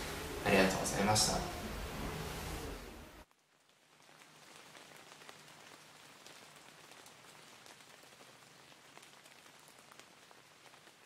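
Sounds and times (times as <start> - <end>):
faint hiss with soft ticks: 3.2 - 11.0.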